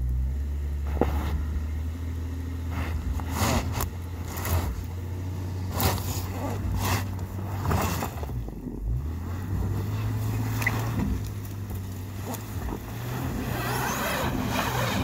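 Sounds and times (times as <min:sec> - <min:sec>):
car engine humming: 0:00.0 - 0:15.0
tires spinning in snow: 0:00.0 - 0:15.0.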